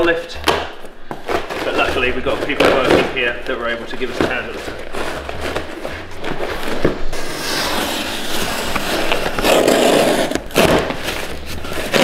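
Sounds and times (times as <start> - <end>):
knife cutting cardboard: 4.1 - 12.0.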